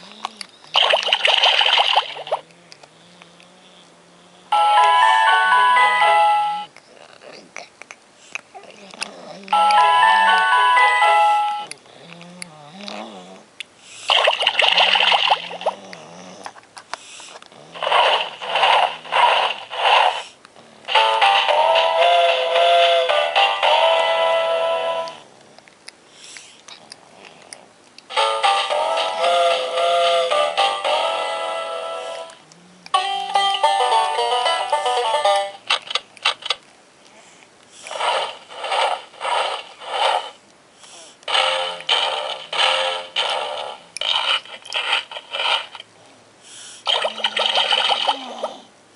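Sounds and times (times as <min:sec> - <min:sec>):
hissing bursts: 0:37.7 - 0:45.8.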